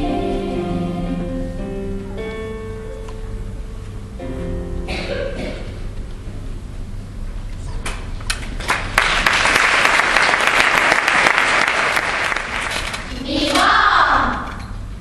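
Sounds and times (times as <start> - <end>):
audience applauding: 8.6 - 13.1.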